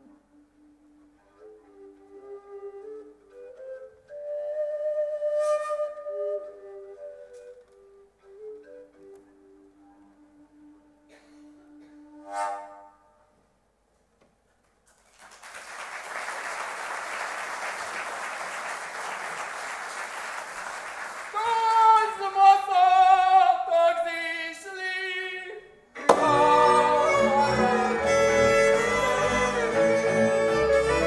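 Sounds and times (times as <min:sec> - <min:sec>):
applause: 0:14.9 - 0:22.1
fiddle string band: 0:26.0 - 0:31.0.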